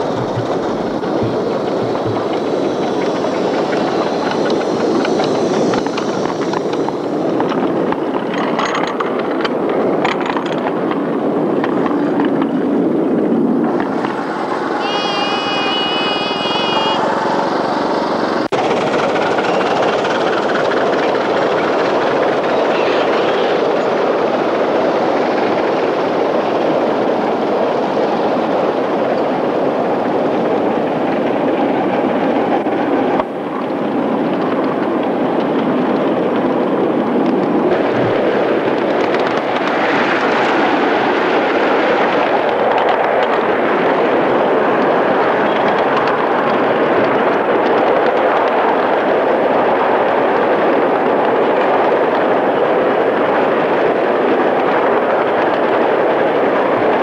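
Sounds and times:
miniature trains rumbling on rails: 0:00.0 - 0:57.0
wavering whistle tone: 0:14.1 - 0:18.1.

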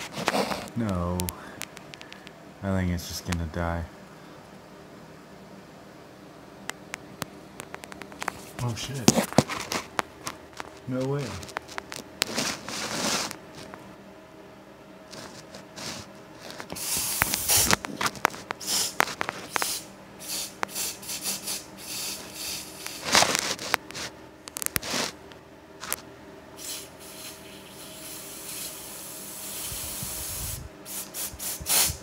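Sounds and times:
clicks and rubbing: 0:06.7 - 0:13.8, 0:15.1 - 0:19.8, 0:22.8 - 0:26.0
aerosol spray hissing: 0:16.7 - 0:17.7, 0:18.6 - 0:23.0, 0:26.6 - 0:32.0.

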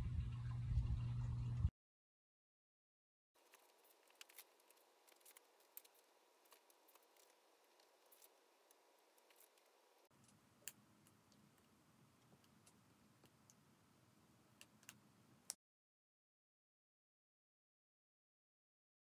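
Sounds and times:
faint low background noise: 0:03.4 - 0:15.6
wood fire crackling: 0:03.4 - 0:15.6.

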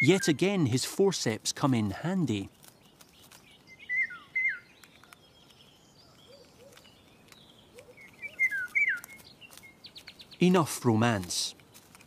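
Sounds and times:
songbird chirping: 0:00.0 - 0:12.0
small ticks: 0:02.5 - 0:03.8, 0:04.6 - 0:10.4, 0:11.1 - 0:12.0.

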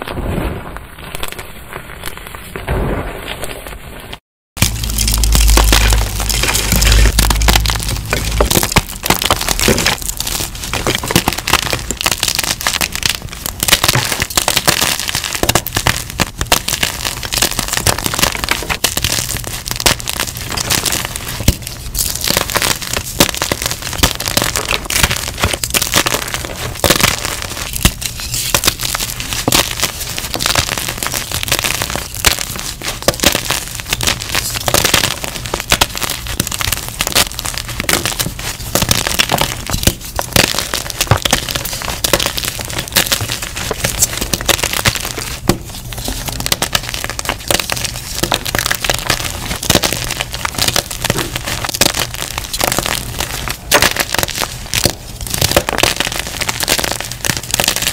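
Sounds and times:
chalk crunching by hand: 0:04.6 - 0:12.7.

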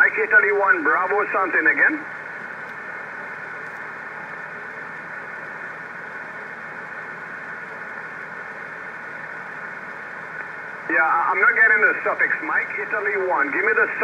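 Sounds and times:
radio receiver hiss: 0:00.0 - 0:14.0.

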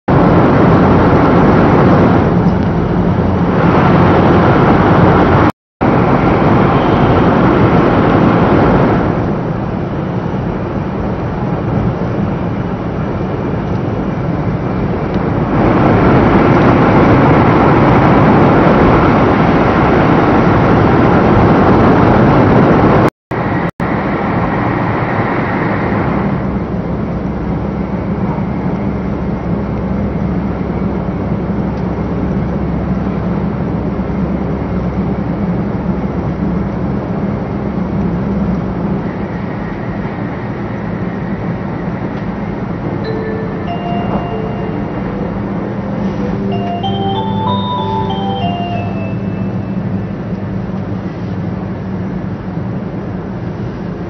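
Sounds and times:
train wheels and air rushing: 0:00.1 - 0:29.6.

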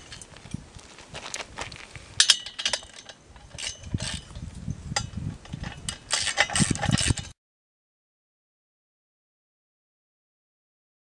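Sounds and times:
wrench clicking on metal nuts: 0:05.0 - 0:07.3.

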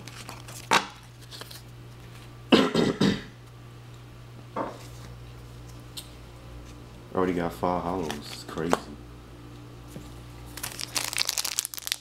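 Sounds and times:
steady low hum: 0:00.0 - 0:11.9
person coughing: 0:02.5 - 0:03.4.

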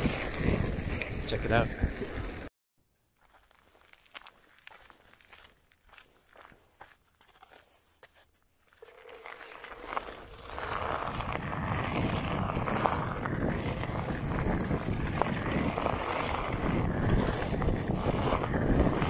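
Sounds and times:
tyre rumbling on gravel: 0:08.7 - 0:19.0
wind on microphone: 0:10.2 - 0:19.0.

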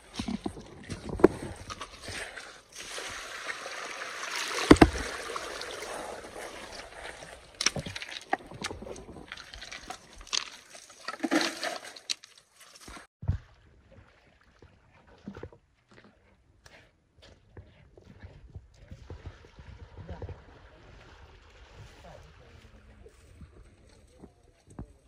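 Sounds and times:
stones clicking and scraping: 0:00.0 - 0:02.5, 0:06.4 - 0:13.1
water and wet gravel sloshing: 0:00.0 - 0:16.1.

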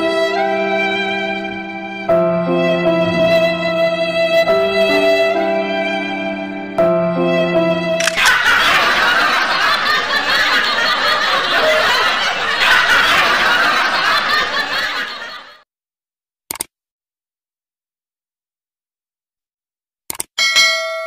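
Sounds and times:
sad violin tune: 0:00.0 - 0:08.0
short click: 0:08.0 - 0:08.4
audience laughter: 0:08.0 - 0:15.6.

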